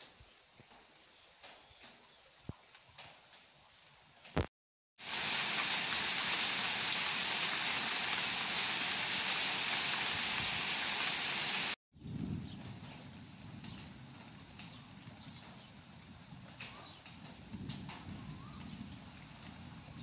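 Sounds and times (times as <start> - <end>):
heavy rain falling: 5.0 - 11.8.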